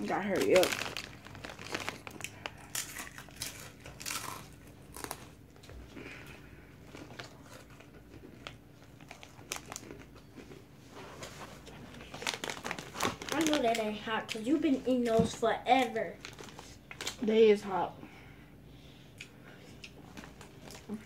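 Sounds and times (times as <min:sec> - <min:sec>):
chip bag crinkling: 0:00.0 - 0:05.7, 0:06.8 - 0:10.6, 0:11.2 - 0:17.3
chips crunching while chewed: 0:00.0 - 0:10.6, 0:12.0 - 0:14.5.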